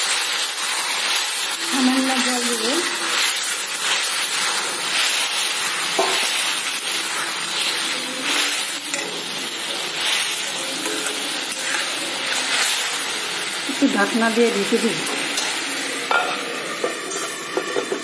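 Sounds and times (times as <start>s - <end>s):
food sizzling in a metal pan: 0.0s - 18.0s
spatula tapping on pan: 6.0s - 6.2s
metal spatula scraping a pan: 7.6s - 13.2s, 15.1s - 18.0s.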